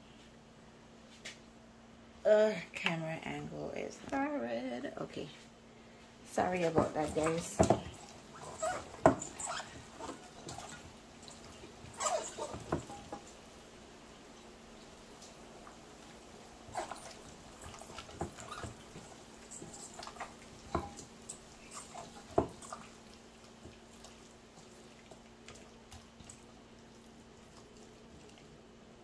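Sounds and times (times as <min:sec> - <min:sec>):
wet handling of raw chicken: 0:06.6 - 0:29.0.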